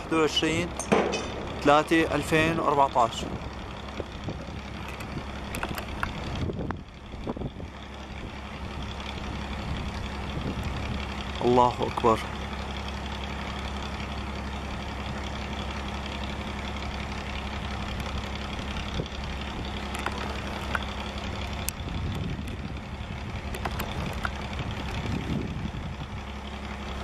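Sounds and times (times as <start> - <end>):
low mechanical hum: 0.0 - 27.0
short low rumbles: 0.1 - 11.1, 17.9 - 26.2
sharp clicks: 19.8 - 20.9, 23.5 - 25.0.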